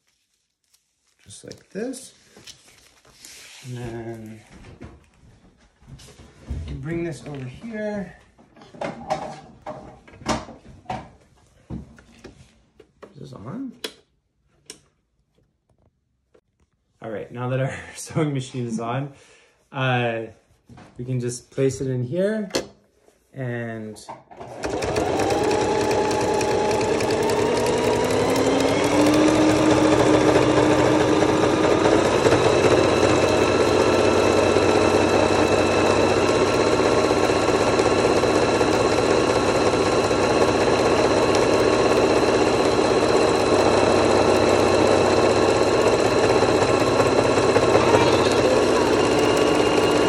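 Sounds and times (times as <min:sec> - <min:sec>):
sewing machine stitching: 0:24.3 - 0:50.0.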